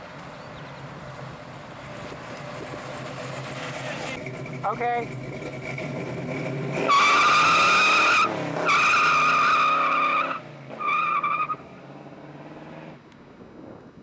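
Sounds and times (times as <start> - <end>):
engine at full throttle: 1.9 - 9.2
tyres squealing in a burnout: 3.5 - 11.6.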